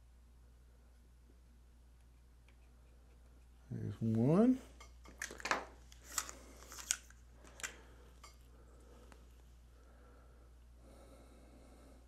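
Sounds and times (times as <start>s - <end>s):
steady low hum: 0.0s - 12.0s
clicks of small parts handled: 4.8s - 8.4s.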